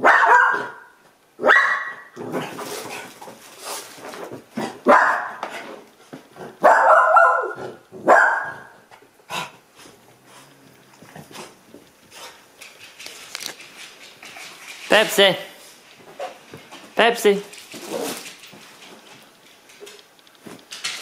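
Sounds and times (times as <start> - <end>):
dog barking: 0.0 - 2.2, 4.8 - 5.4, 6.6 - 8.8.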